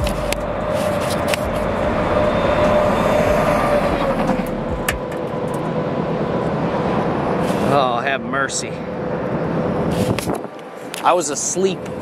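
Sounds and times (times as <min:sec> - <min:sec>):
road traffic rushing past: 0:00.0 - 0:12.0
faint falling tone: 0:01.4 - 0:05.8.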